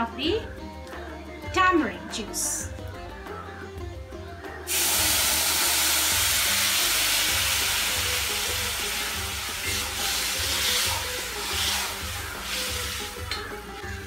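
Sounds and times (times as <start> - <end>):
liquid sizzling in hot oil: 4.7 - 14.0.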